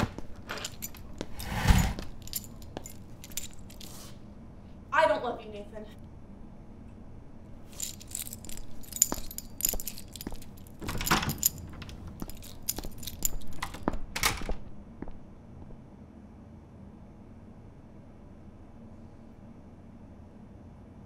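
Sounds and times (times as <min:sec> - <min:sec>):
keys jangling: 0:00.0 - 0:04.1, 0:07.7 - 0:14.0.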